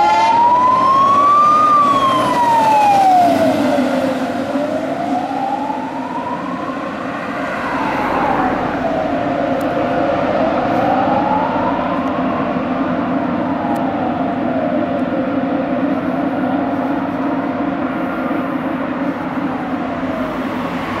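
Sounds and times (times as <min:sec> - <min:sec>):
fire engine siren wailing: 0:00.0 - 0:21.0
steady siren tone: 0:00.0 - 0:21.0
steady low rumble: 0:07.7 - 0:20.5.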